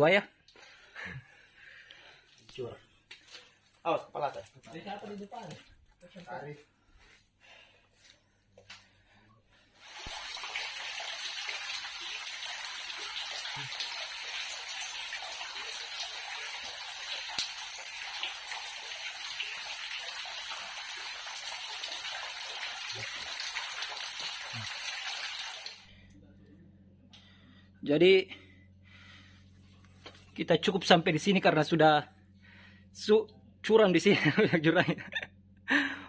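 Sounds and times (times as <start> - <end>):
water splashing from cave ceiling: 9.8 - 25.9.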